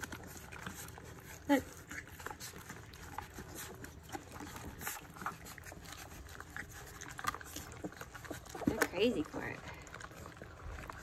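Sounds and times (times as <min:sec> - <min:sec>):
puppies eating wet food: 0:00.0 - 0:11.0.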